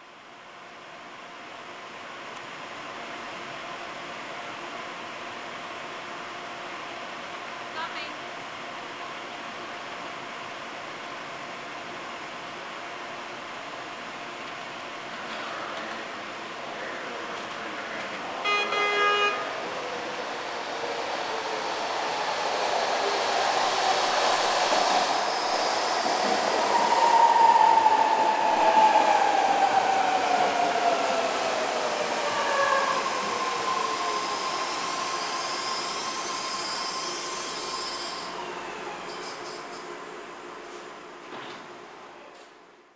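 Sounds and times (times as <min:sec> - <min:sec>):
train wheel and motor noise: 0:00.8 - 0:18.6, 0:19.4 - 0:42.5
train horn blast: 0:18.4 - 0:19.6.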